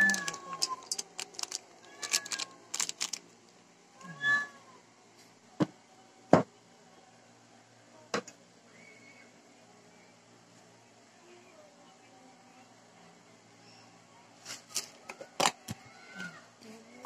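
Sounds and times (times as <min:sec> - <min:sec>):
cat meowing: 0:01.8 - 0:02.6.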